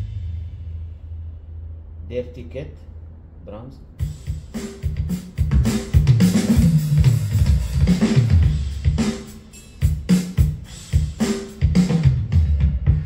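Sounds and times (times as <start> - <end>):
electronic drum beat: 4.0 - 13.0.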